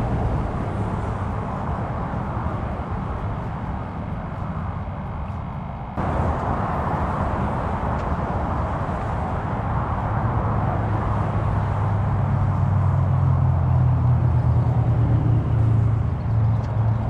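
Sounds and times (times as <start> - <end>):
low engine hum: 0.0 - 17.0
outdoor rush: 0.0 - 17.0.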